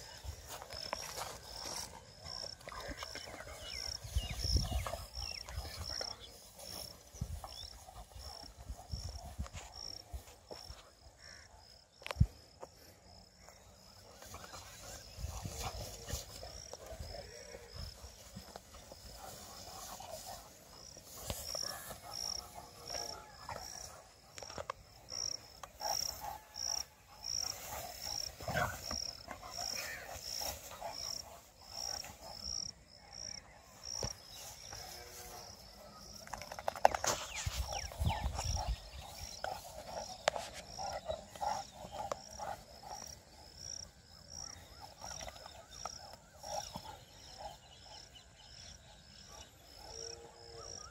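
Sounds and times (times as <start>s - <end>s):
dogs growling and snarling: 25.0s - 32.6s, 37.6s - 48.7s.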